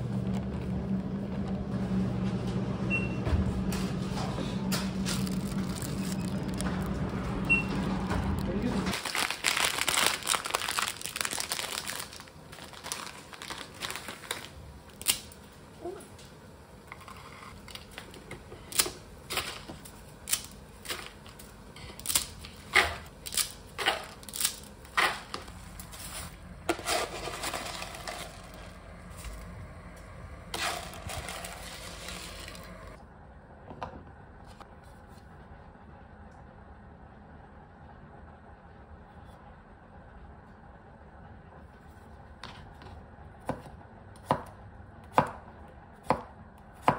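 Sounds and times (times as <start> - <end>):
packaging rustling and crinkling: 5.0 - 7.0, 8.9 - 15.1, 30.6 - 32.9.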